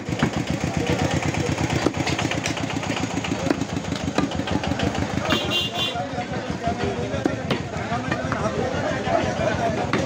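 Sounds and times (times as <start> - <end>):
cleaver chopping on wooden block: 0.0 - 0.5, 3.2 - 5.5
small engine idling: 0.0 - 10.0.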